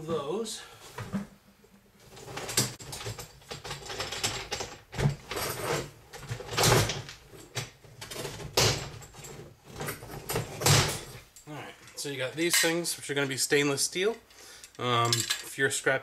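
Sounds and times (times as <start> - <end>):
wire racks rattling and scraping: 2.0 - 11.2.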